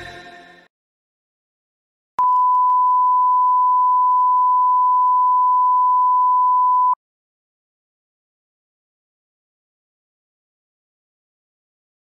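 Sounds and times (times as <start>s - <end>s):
steady test tone beep: 2.2s - 7.0s.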